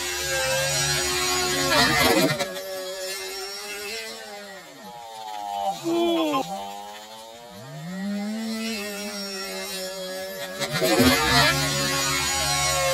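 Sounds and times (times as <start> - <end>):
model helicopter engine revving: 0.0 - 12.9.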